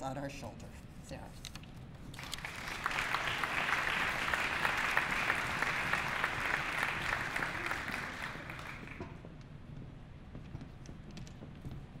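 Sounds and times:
audience applauding: 2.2s - 9.2s.

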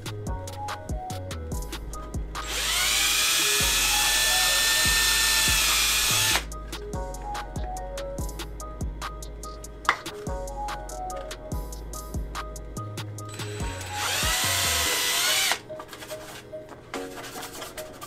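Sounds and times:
background music with ticking beat: 0.0s - 18.0s
cordless drill boring into plastic: 2.5s - 6.4s, 13.4s - 15.6s.

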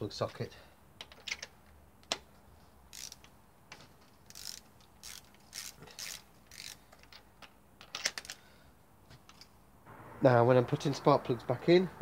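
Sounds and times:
ratchet clicking: 2.9s - 3.3s, 4.3s - 7.1s.

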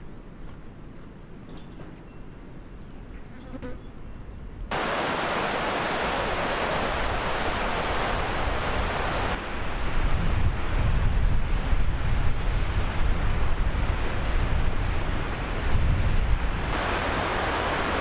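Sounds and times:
river rushing over stones: 4.7s - 10.8s, 16.6s - 18.0s
wind rumble on microphone: 6.2s - 18.0s.

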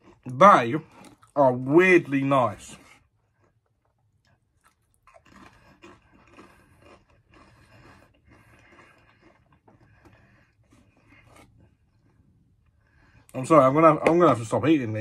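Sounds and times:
chewing crunchy crisp: 0.0s - 14.5s.

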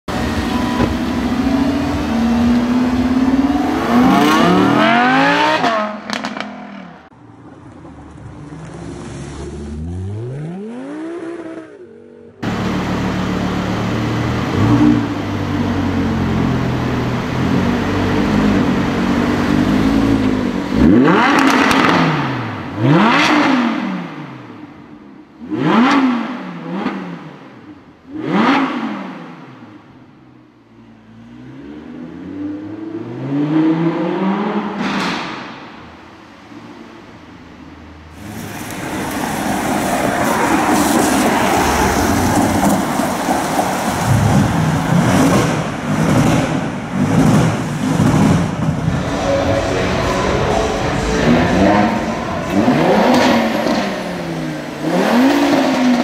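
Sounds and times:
car engine revving: 0.1s - 7.2s, 8.4s - 30.0s, 38.1s - 56.0s
engine throttle blips: 44.1s - 56.0s.

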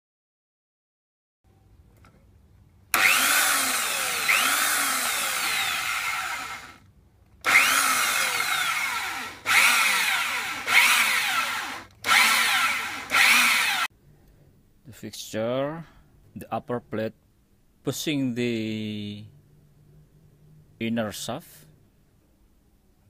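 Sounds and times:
electric drill boring into metal: 2.9s - 6.8s, 7.4s - 13.9s.

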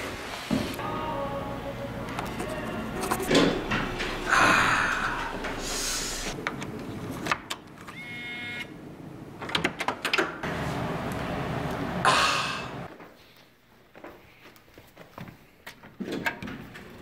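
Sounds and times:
elevator doors sliding open: 3.1s - 6.4s.

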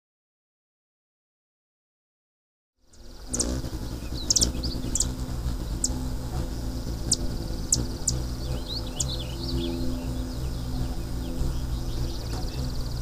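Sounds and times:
hummingbirds chirping: 2.8s - 13.0s
low steady hum: 2.8s - 13.0s.

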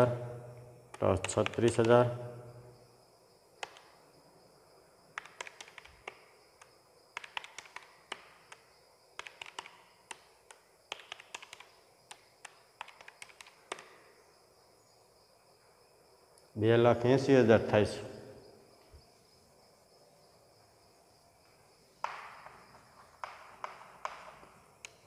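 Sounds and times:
calculator keys clicking: 0.9s - 2.0s, 5.2s - 8.6s, 9.2s - 13.9s.

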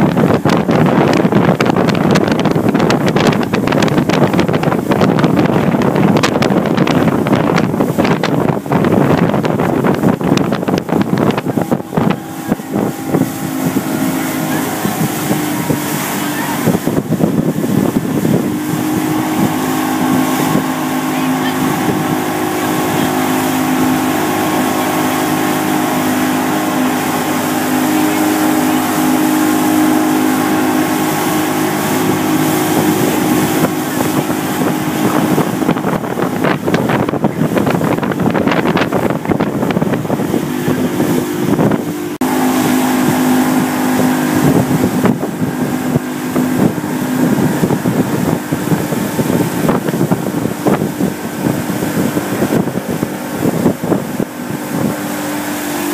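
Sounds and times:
motorboat engine running: 0.0s - 55.9s
rushing water: 0.0s - 55.9s
wind buffeting microphone: 0.0s - 55.9s.

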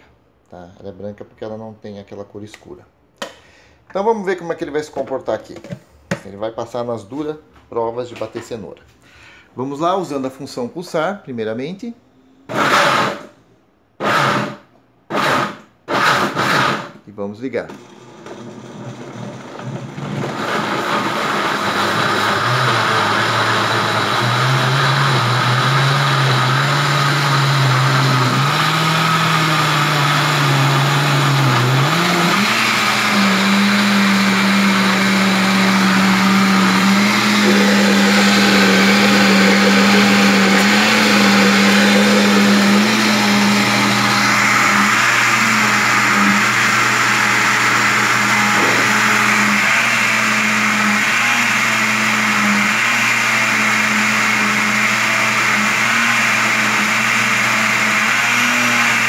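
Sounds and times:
blender motor humming: 12.5s - 13.2s, 14.0s - 16.9s, 17.8s - 59.0s.

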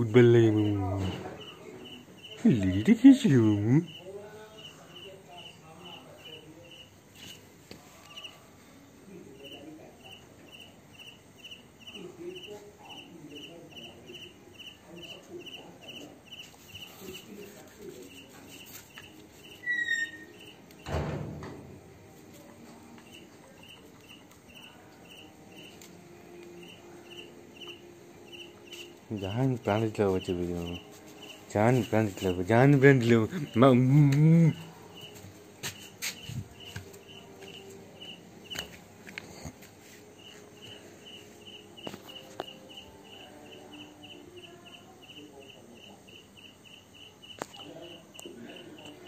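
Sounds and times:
cricket chirping: 0.1s - 7.3s, 9.3s - 20.9s, 23.0s - 25.8s, 26.4s - 35.2s, 36.2s - 38.6s, 40.2s - 49.0s
brief squeak: 19.6s - 20.3s.

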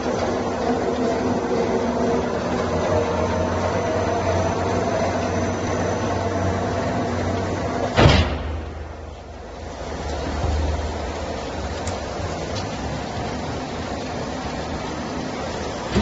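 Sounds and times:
roll mill mechanical drone: 0.0s - 16.0s
loud bang: 8.0s - 9.1s.

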